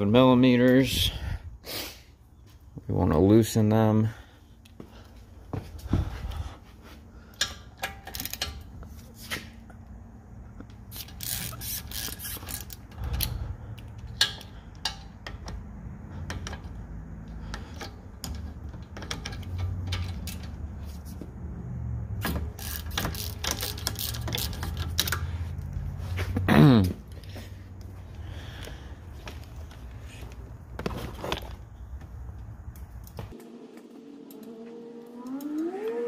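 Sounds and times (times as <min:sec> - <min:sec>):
hand ratchet clicking: 0:10.9 - 0:15.5, 0:22.2 - 0:25.8.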